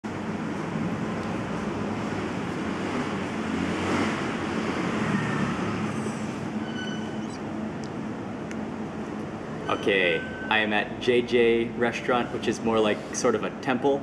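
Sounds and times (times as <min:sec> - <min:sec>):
road traffic rumble: 0:00.1 - 0:14.0
faint high-pitched tone: 0:09.6 - 0:10.7.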